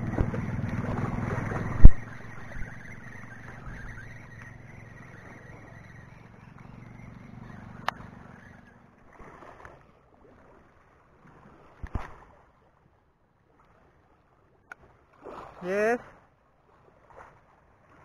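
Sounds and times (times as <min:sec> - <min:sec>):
low rumble: 0:00.0 - 0:08.4
waves lapping against rocks: 0:00.0 - 0:12.9, 0:13.5 - 0:18.0.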